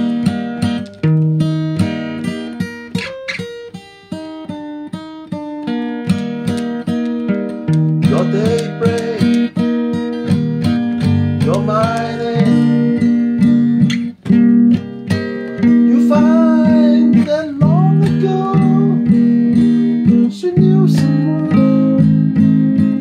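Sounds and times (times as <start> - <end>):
acoustic guitar strumming: 0.0 - 23.0
person singing: 7.9 - 9.7, 11.1 - 13.7, 15.6 - 23.0.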